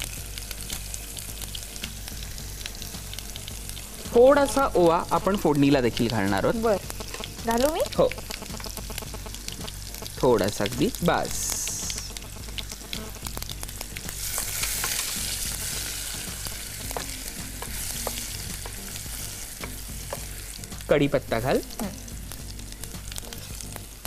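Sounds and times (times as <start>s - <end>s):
spices sizzling in hot oil: 0.0s - 24.0s
wooden spatula stirring: 16.3s - 20.5s.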